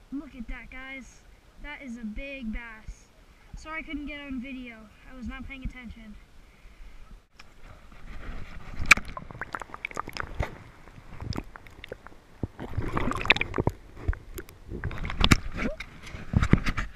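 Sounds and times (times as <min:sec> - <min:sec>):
muffled water splashing and gurgling: 0:07.6 - 0:16.9.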